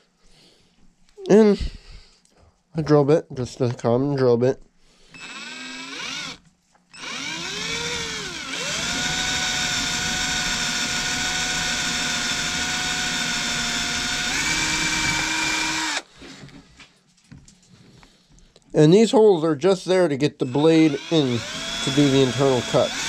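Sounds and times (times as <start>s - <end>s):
cordless drill whining: 5.1s - 16.1s, 20.4s - 23.0s.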